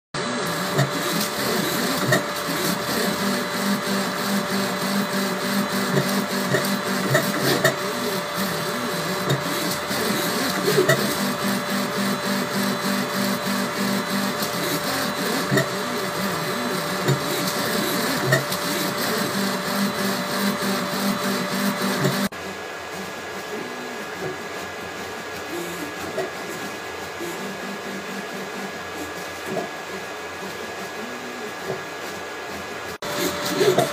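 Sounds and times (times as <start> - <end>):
stepper motors whirring: 0.2 - 22.3, 33.0 - 33.9.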